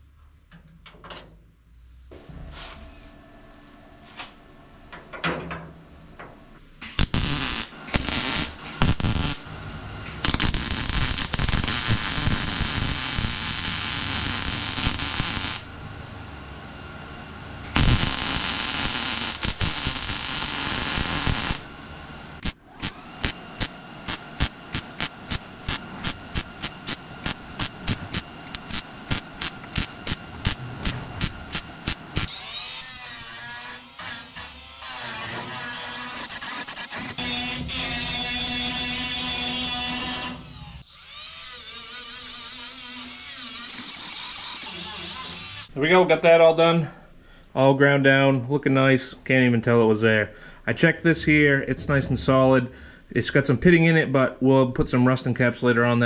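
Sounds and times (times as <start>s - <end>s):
metalworking power tools: 4.9s - 45.8s.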